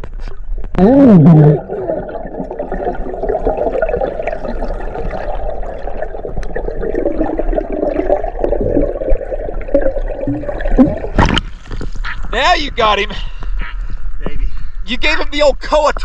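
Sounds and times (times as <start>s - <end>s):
underwater bubbling and gurgling: 0.0s - 12.3s.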